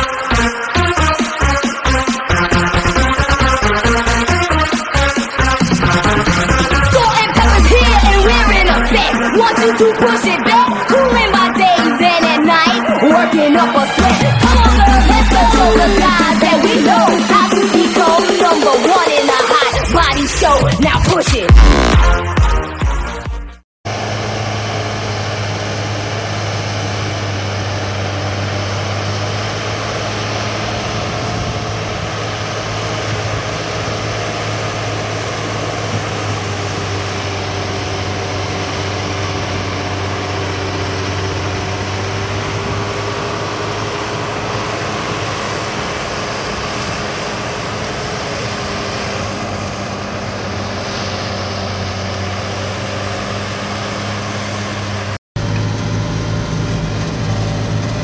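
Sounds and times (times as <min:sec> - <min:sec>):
tractor diesel engine droning: 0:00.0 - 0:21.9, 0:23.9 - 0:58.0.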